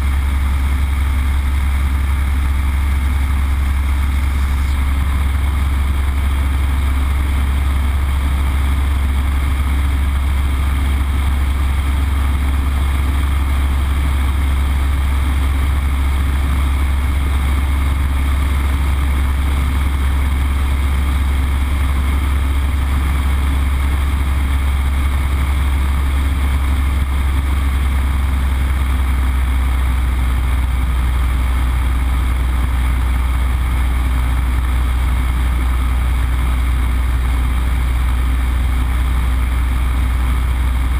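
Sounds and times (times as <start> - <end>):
radial aircraft engine droning: 0.0 - 40.9
rushing airflow: 1.0 - 8.3.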